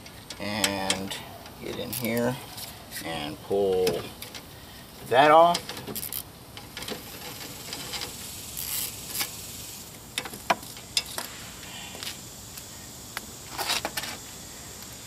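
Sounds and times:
socket wrench clicking and scraping: 0.0s - 2.7s, 5.4s - 9.3s.

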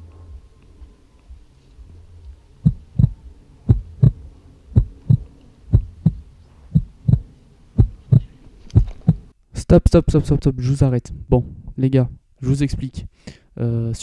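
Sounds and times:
heartbeat thumps: 2.6s - 9.3s.

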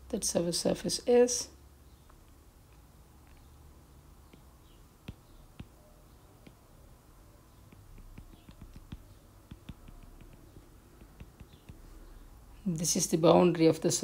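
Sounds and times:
stylus tapping on glass screen: 4.3s - 5.8s, 6.4s - 6.7s, 7.6s - 11.9s.

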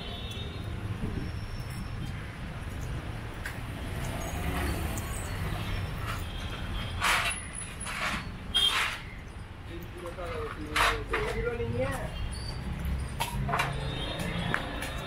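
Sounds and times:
rumble of passing vehicles: 0.0s - 15.0s.

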